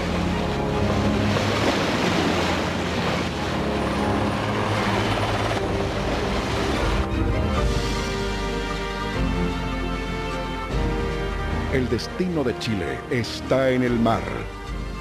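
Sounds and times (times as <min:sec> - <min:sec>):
aircraft engine rushing: 0:01.1 - 0:08.6.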